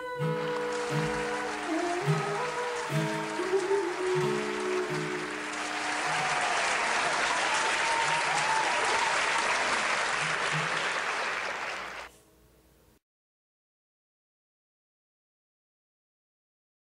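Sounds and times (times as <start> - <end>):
acoustic guitar notes ringing: 0.0 - 5.8
audience applause: 0.3 - 12.1.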